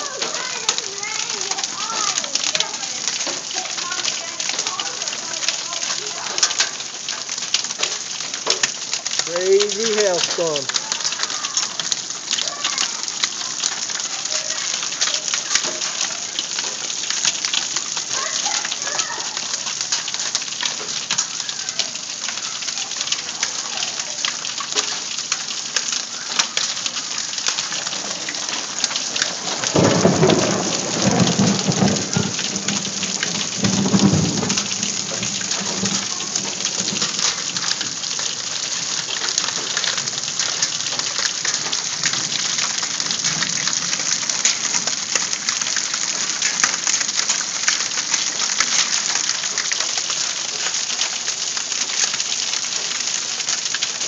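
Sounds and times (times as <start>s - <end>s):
hail striking wooden deck: 0.0s - 54.0s
thunder rumbling: 27.2s - 46.9s.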